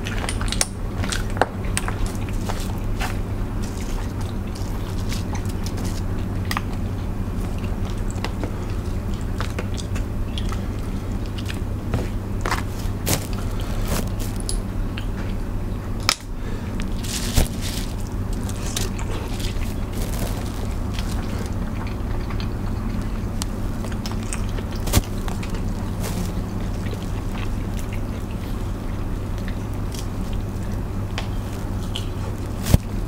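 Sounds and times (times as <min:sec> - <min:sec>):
chewing: 0:00.0 - 0:15.4, 0:16.0 - 0:33.0
steady low hum: 0:00.0 - 0:33.0
crab shells cracking: 0:16.0 - 0:28.4.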